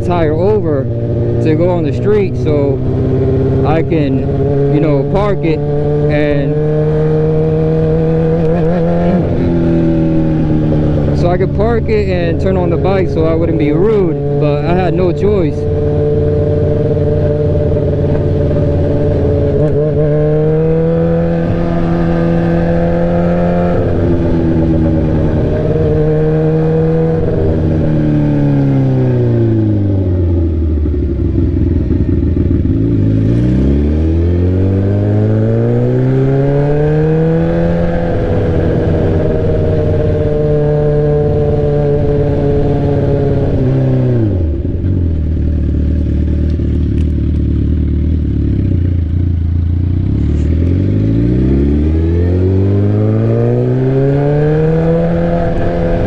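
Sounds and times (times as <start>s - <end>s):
motorcycle exhaust revving: 0.0s - 56.0s.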